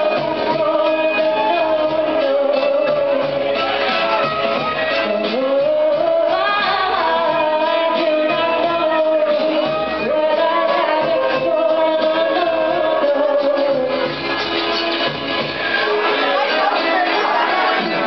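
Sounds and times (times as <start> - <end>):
woman singing: 0.0 - 3.6, 5.0 - 14.2.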